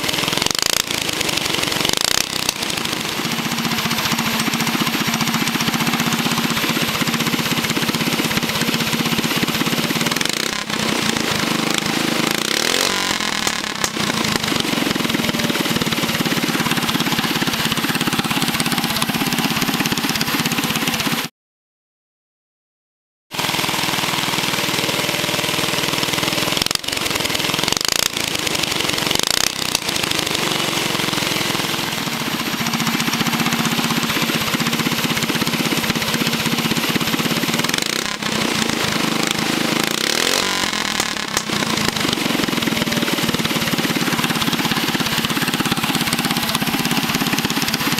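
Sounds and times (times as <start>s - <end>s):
go-kart engine revving: 0.0s - 21.3s, 23.4s - 47.9s.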